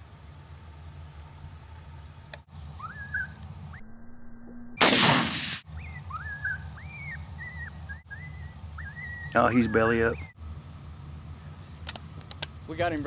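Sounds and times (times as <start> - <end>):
short rising whistles: 2.6 - 4.8, 5.7 - 10.4
rifle shot: 4.8 - 5.6.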